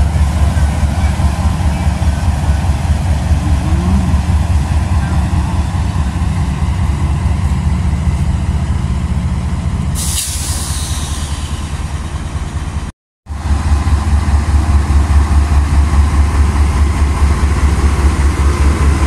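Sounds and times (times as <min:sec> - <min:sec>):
diesel locomotive idling: 0:00.0 - 0:19.0
air brake hiss: 0:10.0 - 0:11.7.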